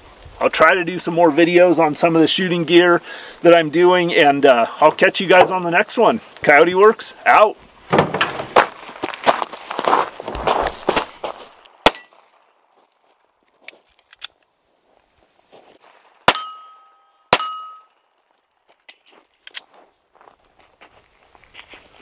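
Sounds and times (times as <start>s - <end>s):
footsteps crunching on gravel: 8.0s - 11.8s, 12.7s - 16.0s, 18.0s - 22.0s
pistol shots: 11.8s - 12.5s, 16.2s - 17.8s
short metallic ring: 16.3s - 18.0s.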